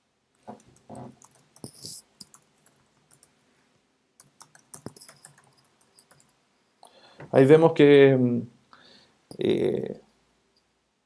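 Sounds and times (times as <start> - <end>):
typing on computer keyboard: 0.5 - 3.3, 4.2 - 6.3.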